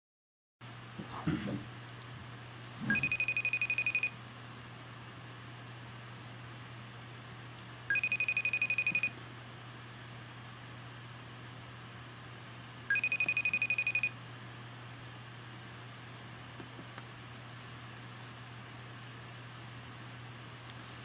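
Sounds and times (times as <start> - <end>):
trilling ringtone: 2.9 - 4.1, 7.9 - 9.1, 12.9 - 14.1.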